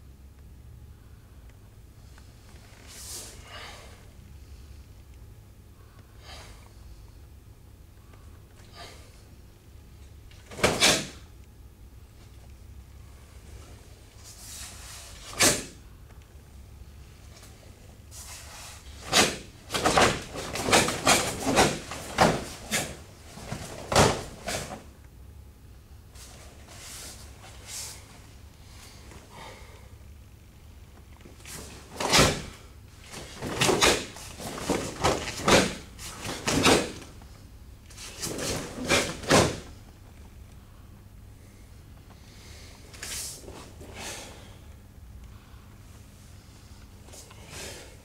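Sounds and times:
bare feet stamping on foam mats: 19.2 - 22.9.

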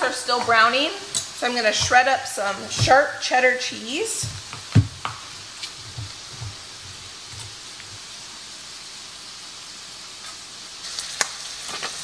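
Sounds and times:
sausages sizzling in a pan: 0.0 - 12.0
soft low thumps: 1.6 - 3.3, 4.1 - 8.1.

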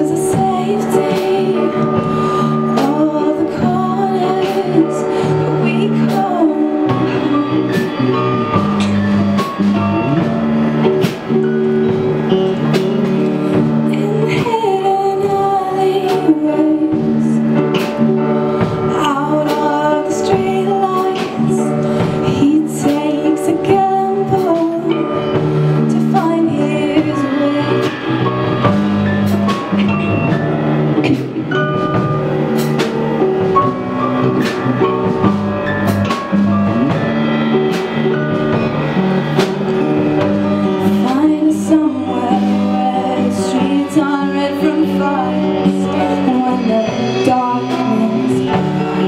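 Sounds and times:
woman singing: 0.0 - 9.0, 13.4 - 28.9, 40.2 - 49.0
drum kit: 0.0 - 49.0
electric guitars: 0.0 - 49.0
upright piano: 0.0 - 49.0.

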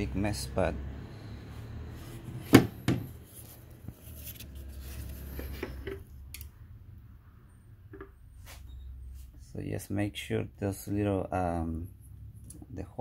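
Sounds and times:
rustling: 3.1 - 6.0.

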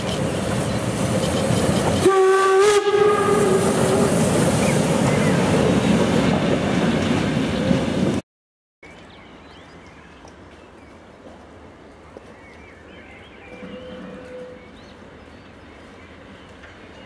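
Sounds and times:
steam locomotive passing: 0.0 - 8.2
steam whistle blast: 2.0 - 4.3.

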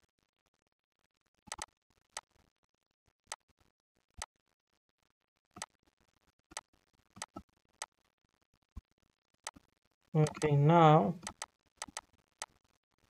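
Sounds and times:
computer mouse clicking: 1.5 - 2.3, 10.2 - 10.5, 11.2 - 12.5.

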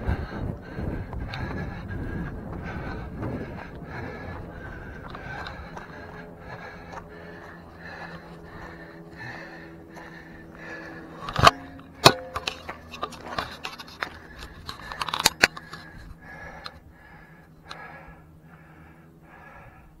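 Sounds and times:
runner's soft footsteps: 0.6 - 9.0
camera and poles clicking and knocking: 11.2 - 16.8.

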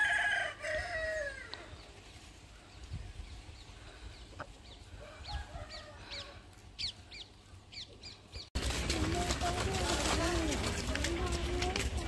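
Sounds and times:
chickens clucking: 1.5 - 8.4.

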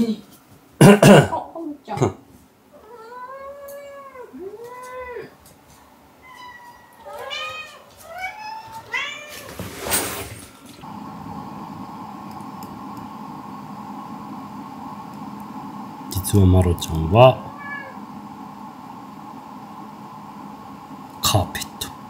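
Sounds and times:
cat meowing: 2.8 - 5.3, 6.2 - 9.6, 17.5 - 18.0
steady low hum: 10.8 - 22.0.

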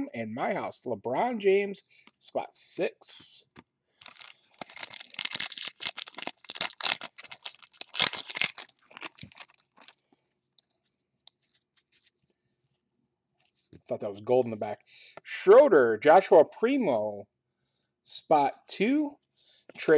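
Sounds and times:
foil pack tearing and crinkling: 4.0 - 10.0.

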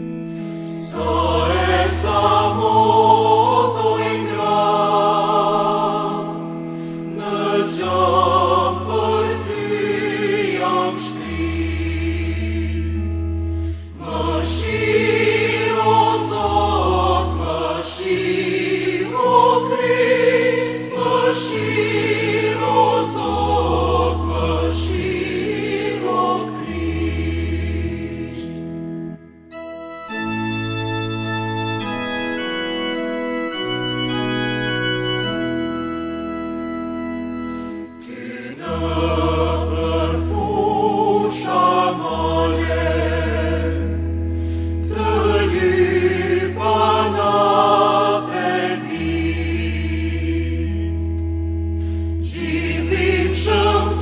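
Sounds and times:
organ: 0.0 - 54.0.

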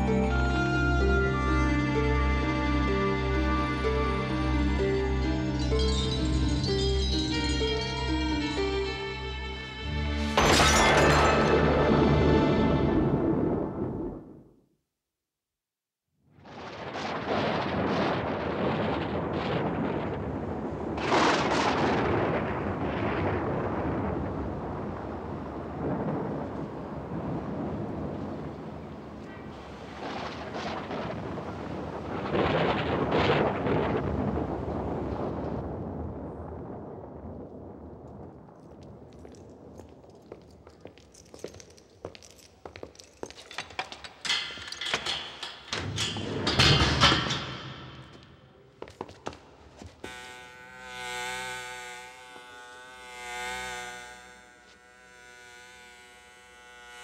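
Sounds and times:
thunder rumbling: 12.1 - 14.5, 16.4 - 40.1
footsteps on hard floor: 39.2 - 44.2, 48.1 - 50.0.

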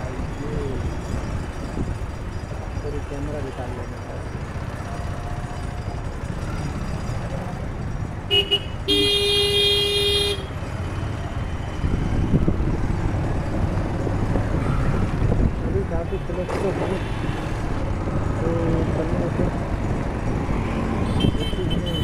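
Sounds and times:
moving vehicle rumble: 0.0 - 22.0
street traffic: 0.0 - 22.0
vehicle horn: 8.3 - 10.6, 21.0 - 22.0.

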